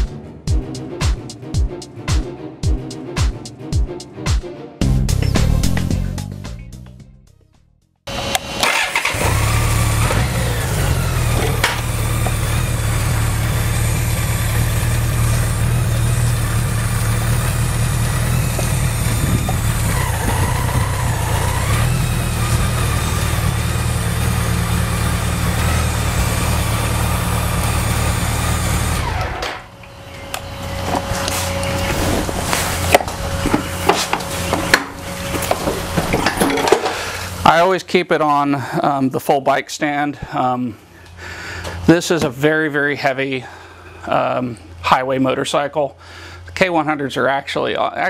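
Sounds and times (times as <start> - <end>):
motorcycle engine running: 8.1 - 37.6.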